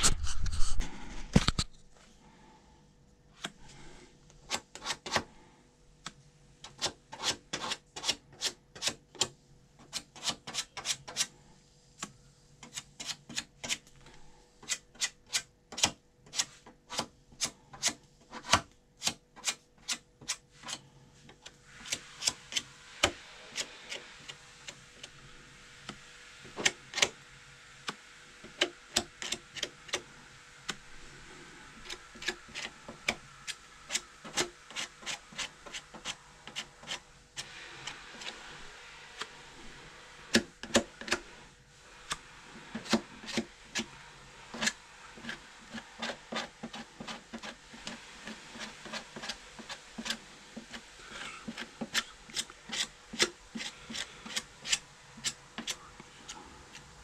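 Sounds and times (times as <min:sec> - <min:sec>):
faint steady hiss: 0:20.5 - 0:57.0.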